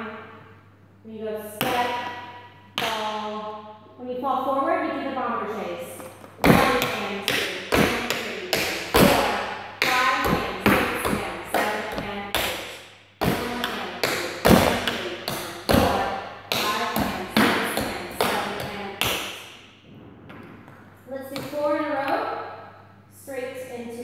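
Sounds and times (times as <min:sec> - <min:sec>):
tap shoes on wooden floor: 0:06.0 - 0:19.4.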